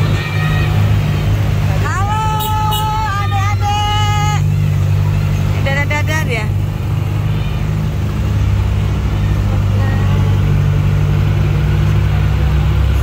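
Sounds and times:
car engine running: 0.0s - 13.0s.

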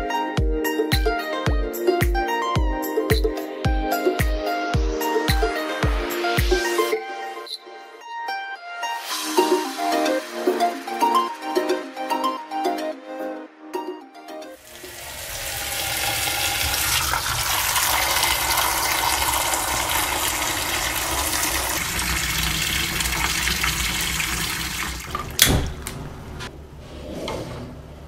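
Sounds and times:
tap water splashing into pot: 14.7s - 25.9s.

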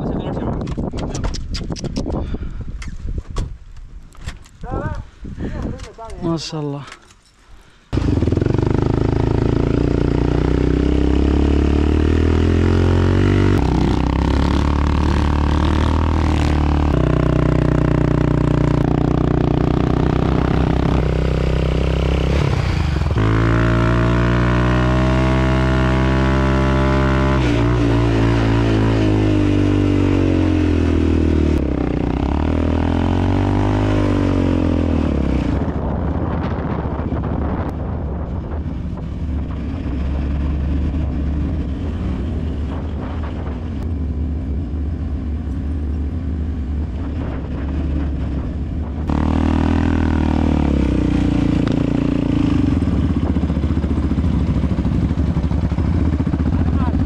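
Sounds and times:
quad bike engine revving: 7.9s - 36.5s, 49.0s - 57.0s.

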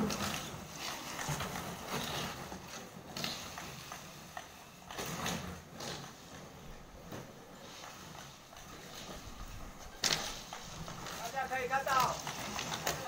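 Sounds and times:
plastic bottles knocking and rattling: 7.0s - 13.0s.

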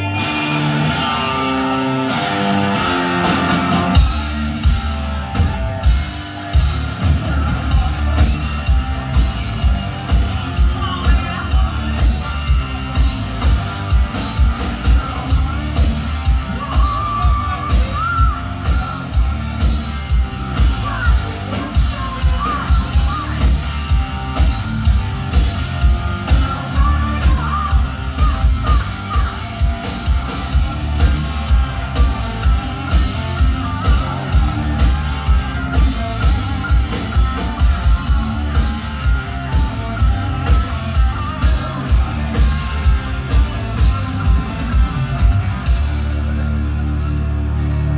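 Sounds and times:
drum kit beat: 0.0s - 46.8s
electric guitars and bass: 0.0s - 47.9s
person singing: 14.8s - 19.3s, 26.1s - 29.7s.

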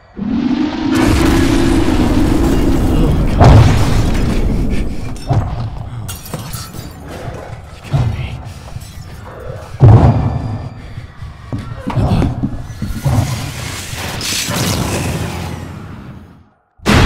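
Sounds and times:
rumbling roar: 0.0s - 5.0s
heavy boom and thuds: 0.2s - 5.8s.

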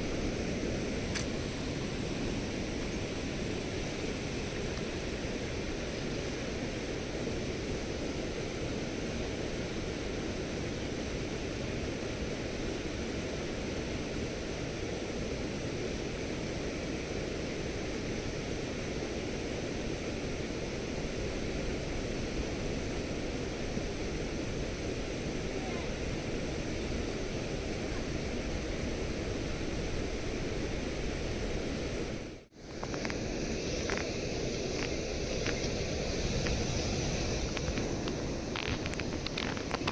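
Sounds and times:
river water rushing: 0.0s - 14.8s, 19.2s - 39.9s.

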